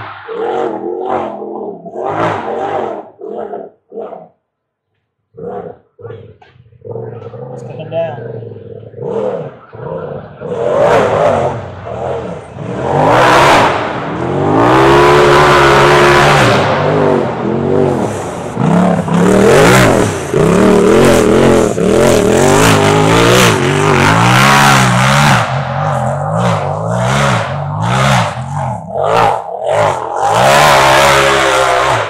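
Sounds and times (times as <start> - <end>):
off-road vehicle engine revving: 5.4 - 32.0.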